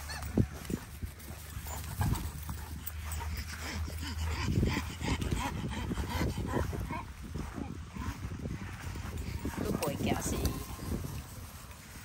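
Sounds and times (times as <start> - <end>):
dogs growling and yipping: 1.3 - 9.6.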